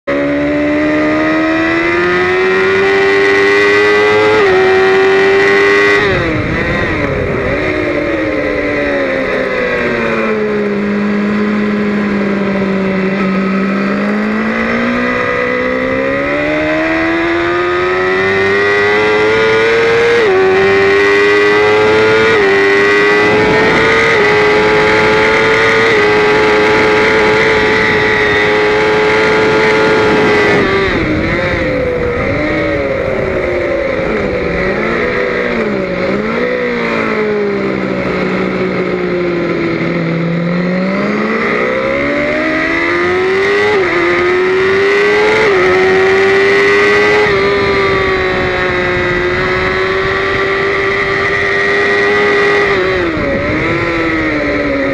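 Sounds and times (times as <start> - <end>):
motorcycle engine at full throttle: 0.0 - 54.9
wind rush: 3.2 - 54.9.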